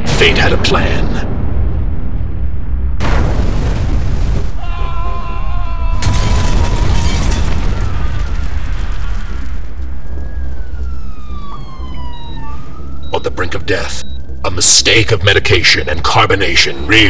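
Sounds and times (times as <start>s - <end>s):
deep explosive rumble: 0.0s - 16.9s
falling whistle-like glide: 10.2s - 13.0s.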